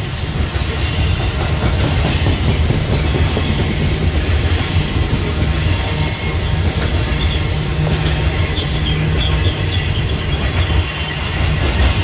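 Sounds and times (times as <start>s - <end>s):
train wheels rumbling on rails: 0.0s - 12.0s
wheel squeals: 3.0s - 12.0s.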